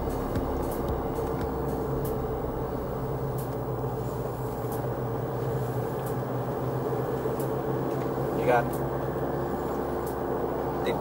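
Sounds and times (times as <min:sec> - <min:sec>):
car engine and tyre rumble: 0:00.0 - 0:11.0
faint ticks: 0:04.6 - 0:04.9.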